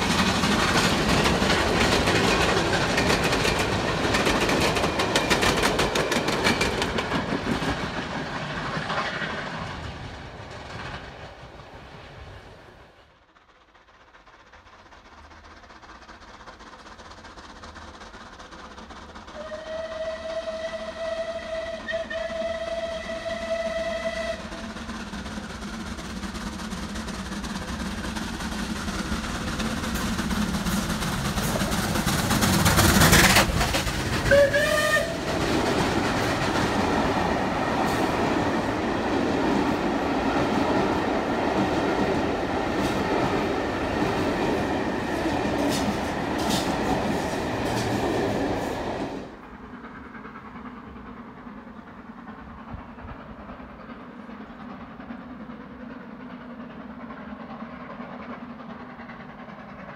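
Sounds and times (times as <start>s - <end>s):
wheels clicking on rails: 0.0s - 11.7s, 13.0s - 59.9s
steam train passing: 0.0s - 59.9s
train whistle: 19.3s - 24.6s, 34.2s - 35.4s.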